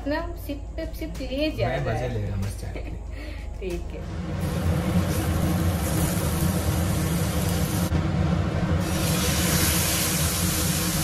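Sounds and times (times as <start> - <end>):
low mechanical hum: 0.0 - 11.0
oil sizzling in a frying pan: 4.2 - 11.0.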